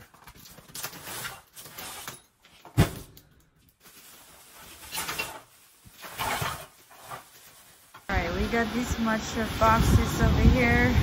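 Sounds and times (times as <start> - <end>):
plastic bag rustling: 0.0 - 8.8
box thumping on concrete floor: 2.6 - 3.2.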